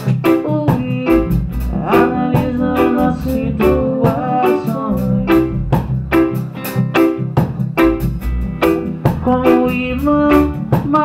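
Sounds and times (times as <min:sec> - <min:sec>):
person singing: 0:00.0 - 0:05.8, 0:09.1 - 0:11.0
drums steady beat: 0:00.0 - 0:11.0
electric guitar: 0:00.0 - 0:11.0
keyboard chords: 0:00.0 - 0:11.0.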